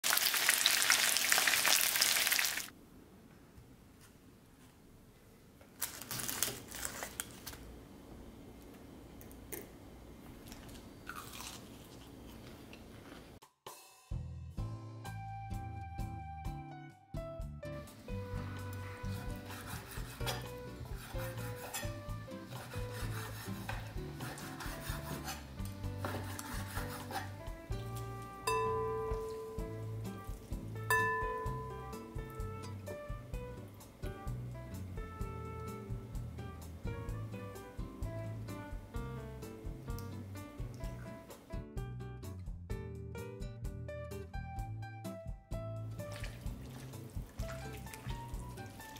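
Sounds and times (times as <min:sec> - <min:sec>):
fried chicken crackling: 0:00.0 - 0:02.7, 0:05.8 - 0:07.6
knife slicing raw chicken: 0:22.5 - 0:27.4.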